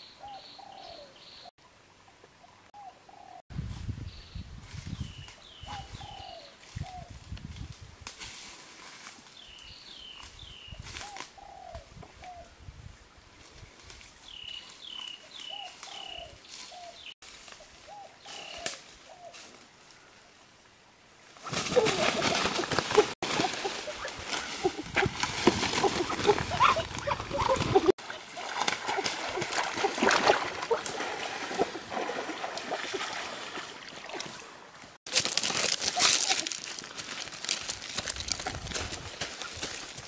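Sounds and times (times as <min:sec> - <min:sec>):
rustling in dry leaves: 0:04.5 - 0:11.4, 0:13.4 - 0:20.1, 0:21.2 - 0:34.2, 0:35.0 - 0:40.0
thrashing rustle of undergrowth: 0:06.6 - 0:11.4, 0:21.3 - 0:34.4, 0:35.0 - 0:40.0.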